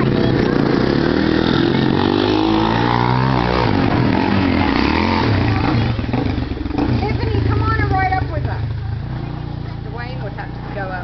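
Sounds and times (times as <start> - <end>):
engine revving on gravel: 0.0 - 11.0
engine idling: 3.8 - 11.0.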